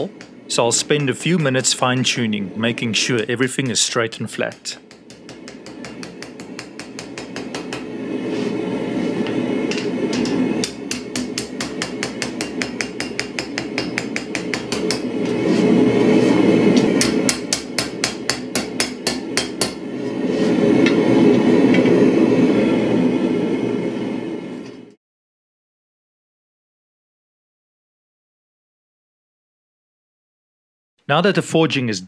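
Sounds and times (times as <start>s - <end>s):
hammer striking blade on anvil: 0.0s - 2.3s, 3.5s - 8.0s, 9.7s - 15.4s, 16.7s - 19.9s.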